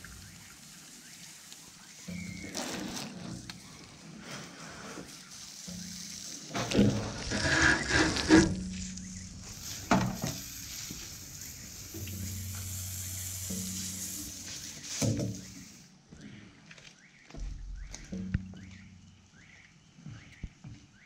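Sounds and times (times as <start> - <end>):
water hissing on hot metal: 0.0 - 16.0.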